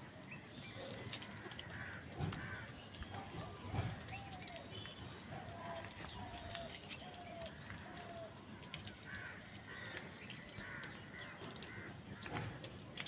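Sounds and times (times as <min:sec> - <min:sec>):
crows cawing: 0:01.2 - 0:02.9, 0:05.6 - 0:12.8.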